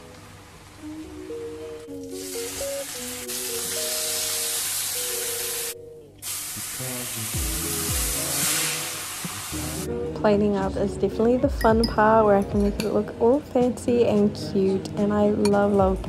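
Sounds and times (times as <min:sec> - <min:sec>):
background music with melody: 0:00.0 - 0:16.0
food sizzling in a frying pan: 0:02.0 - 0:09.9.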